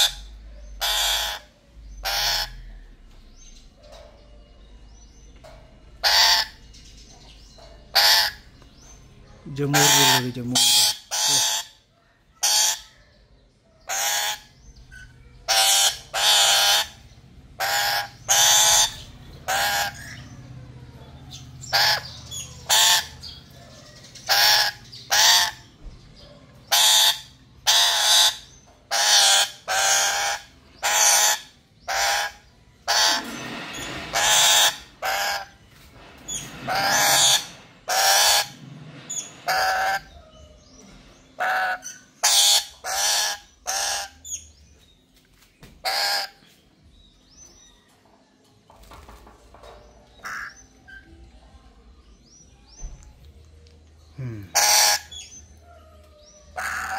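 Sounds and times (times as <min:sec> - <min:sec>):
parrot screeching: 0:00.0 - 0:02.7, 0:06.0 - 0:06.6, 0:07.9 - 0:08.4, 0:09.7 - 0:11.8, 0:12.4 - 0:12.9, 0:13.9 - 0:17.0, 0:17.6 - 0:20.2, 0:21.7 - 0:23.2, 0:24.3 - 0:25.7, 0:26.7 - 0:35.6, 0:36.3 - 0:40.2, 0:41.4 - 0:44.4, 0:45.8 - 0:46.4, 0:50.2 - 0:51.0, 0:54.5 - 0:55.4, 0:56.5 - 0:56.9.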